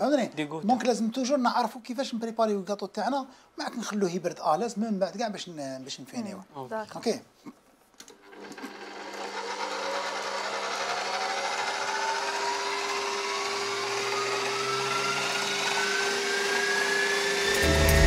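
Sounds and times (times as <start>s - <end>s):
stand mixer whisking cream: 8.3s - 17.7s.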